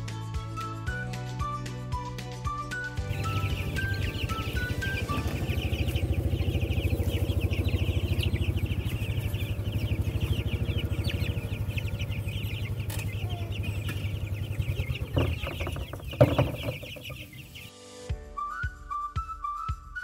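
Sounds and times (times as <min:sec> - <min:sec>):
chicks peeping and cheeping: 0:03.0 - 0:17.7
engine idling: 0:03.1 - 0:17.7
knocks: 0:13.8 - 0:17.4.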